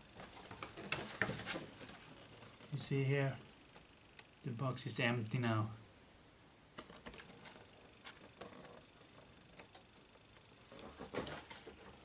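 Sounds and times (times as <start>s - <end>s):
cardboard rustling: 0.1s - 2.8s, 6.8s - 12.0s.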